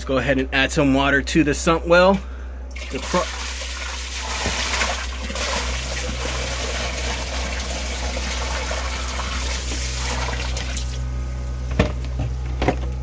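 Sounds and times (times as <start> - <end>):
steady low hum: 0.0 - 13.0
water splashing into pit: 2.8 - 11.0.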